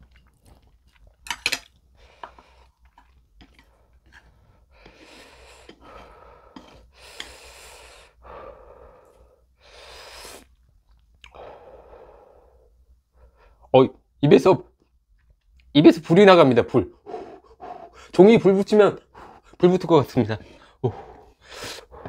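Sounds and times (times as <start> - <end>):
man breathing hard: 4.6 - 10.5, 11.3 - 13.6, 17.0 - 18.2, 19.0 - 19.6, 20.4 - 22.0.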